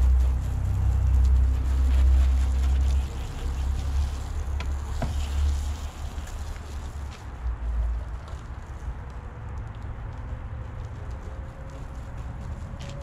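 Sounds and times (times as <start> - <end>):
hose nozzle spraying water: 0.7 - 7.2
sharp ticks: 7.8 - 13.0.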